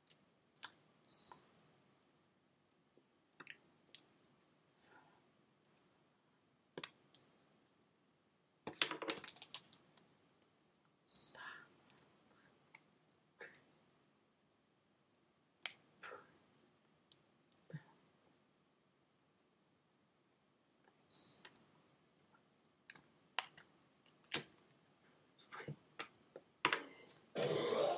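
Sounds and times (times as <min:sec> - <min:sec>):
soft breathy sounds: 0:04.7 - 0:06.4, 0:11.1 - 0:14.0, 0:15.8 - 0:16.6, 0:17.5 - 0:18.5, 0:26.8 - 0:27.9.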